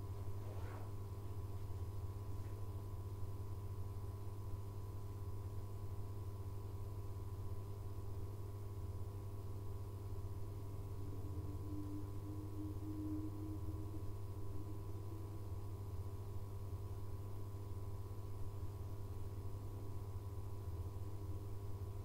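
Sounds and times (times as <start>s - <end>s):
electric train equipment hum: 5.2s - 19.3s.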